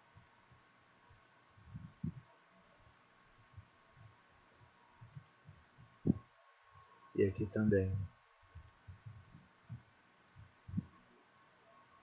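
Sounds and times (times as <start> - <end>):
computer mouse clicks: 0.1 - 0.4, 1.0 - 1.3, 2.0 - 3.1, 4.5 - 5.4, 8.6 - 8.8
soft low thumps: 1.6 - 2.2, 5.0 - 6.2, 7.9 - 11.0.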